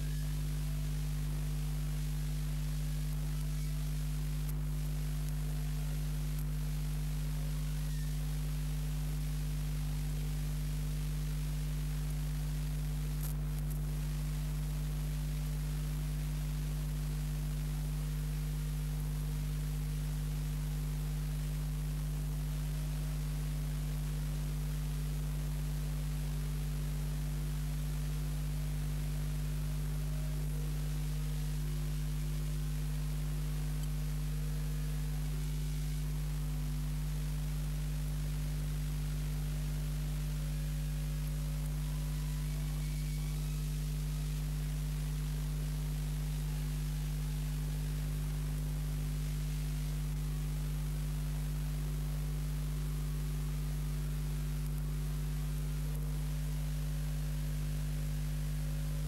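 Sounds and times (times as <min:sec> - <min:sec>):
constant hiss: 0:00.0 - 0:59.0
electrical mains hum: 0:00.0 - 0:59.0
faint click: 0:13.1 - 0:13.9, 0:32.4 - 0:34.7.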